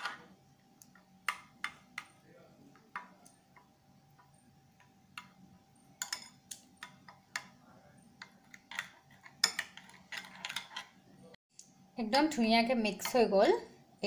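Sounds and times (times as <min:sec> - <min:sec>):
metal spoon clinking in glass bowl: 0:06.0 - 0:07.5.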